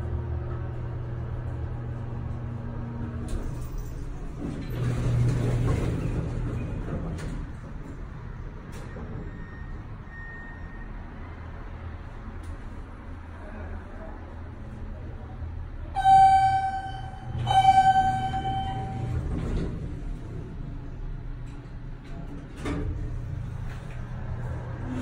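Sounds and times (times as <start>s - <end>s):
elevator motor hum: 16.0s - 22.0s.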